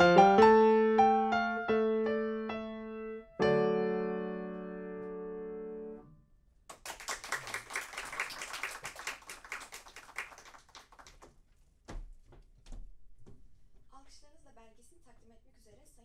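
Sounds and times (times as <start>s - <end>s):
audience applause: 6.7s - 11.3s.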